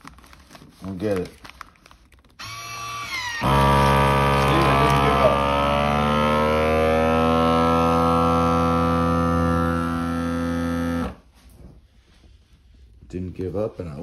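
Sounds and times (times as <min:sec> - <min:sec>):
vacuum sealer pump running: 0:02.4 - 0:11.2.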